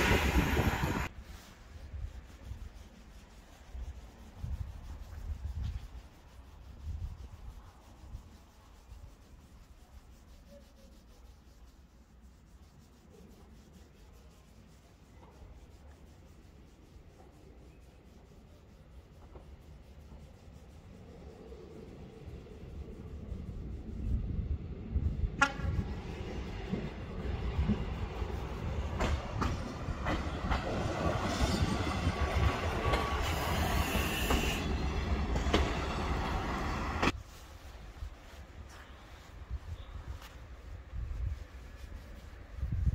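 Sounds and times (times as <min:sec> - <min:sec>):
wind buffeting microphone: 0:00.0 - 0:01.1, 0:21.5 - 0:33.8, 0:39.4 - 0:42.9
outdoor hush: 0:00.0 - 0:42.9.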